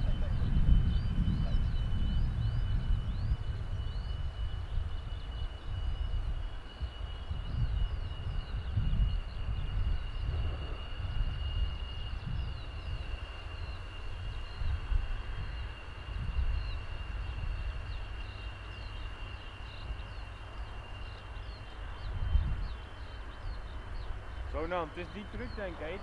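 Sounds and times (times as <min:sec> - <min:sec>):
gusty low rumble: 0:00.0 - 0:18.9, 0:21.0 - 0:26.0
distant jet engine whine: 0:00.0 - 0:26.0
small birds chirping: 0:07.4 - 0:26.0.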